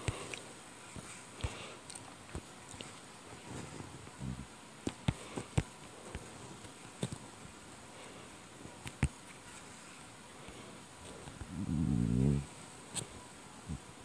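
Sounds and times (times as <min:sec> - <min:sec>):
faint steady buzz: 0:00.0 - 0:14.0
faint clicks and taps: 0:08.8 - 0:09.5.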